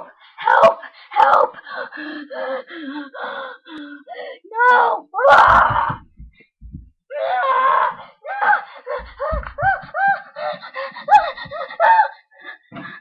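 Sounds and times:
child crying: 7.1 - 10.3.

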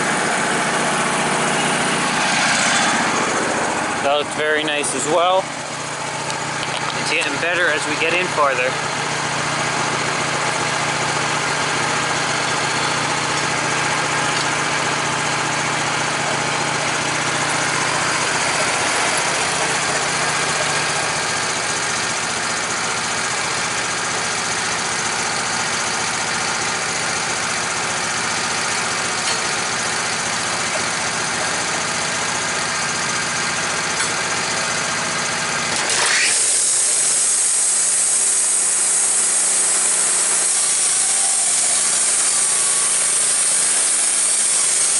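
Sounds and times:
sawmill engine running: 0.0 - 44.9
saw blade high hiss: 35.8 - 44.9.

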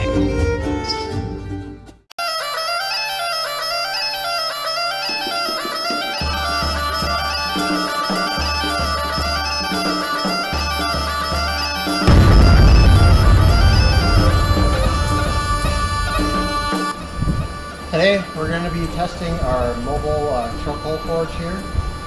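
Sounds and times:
bagpipe melody over drone: 2.2 - 22.0
low repeating beat: 12.0 - 17.8.

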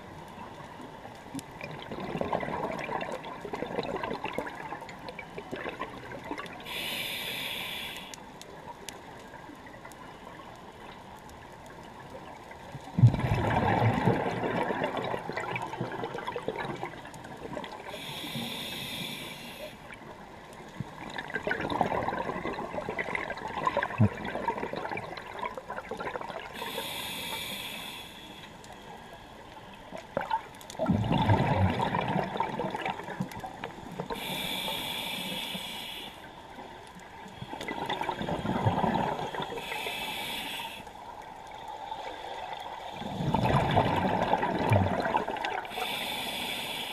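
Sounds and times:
bubbling exhaust underwater: 1.4 - 8.2, 12.7 - 28.4, 29.9 - 46.9
regulator hissing inhale: 6.6 - 8.3, 17.8 - 20.0, 26.5 - 29.8, 34.0 - 36.7, 39.2 - 41.1, 45.6 - 46.9.

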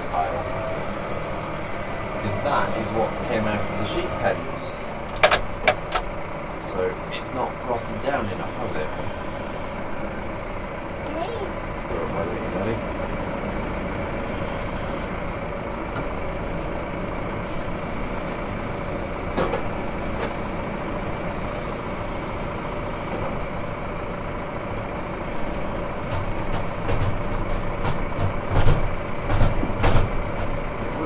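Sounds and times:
tractor diesel engine running: 0.0 - 31.0
sharp clicks and knocks: 5.1 - 6.1, 26.1 - 30.6.

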